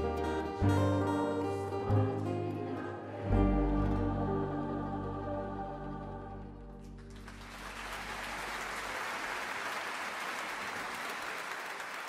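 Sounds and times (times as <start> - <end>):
choir and band chord: 0.0 - 7.0
audience applause: 6.9 - 12.0.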